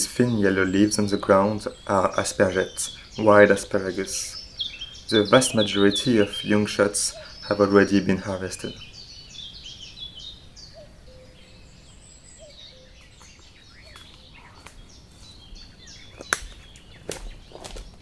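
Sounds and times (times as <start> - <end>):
birds chirping: 0.0 - 18.0
footsteps snapping twigs: 13.0 - 18.0.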